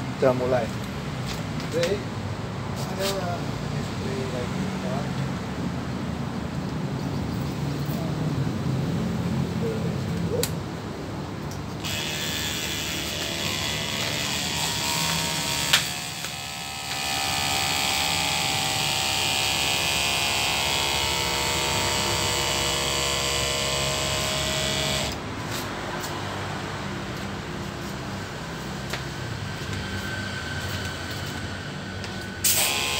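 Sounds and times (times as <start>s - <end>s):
electric pump motor whirring: 11.8s - 25.3s, 32.0s - 32.9s.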